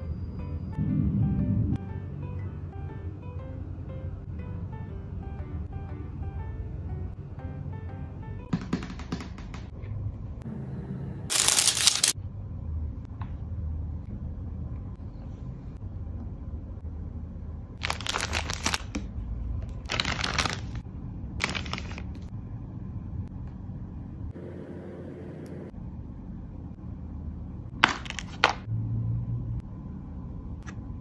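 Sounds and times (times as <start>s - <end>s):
low steady hum: 0.0s - 8.4s, 9.7s - 17.9s, 20.7s - 31.0s
plastic packaging rustling: 11.3s - 12.2s, 17.8s - 18.9s, 19.8s - 20.8s, 21.4s - 22.1s.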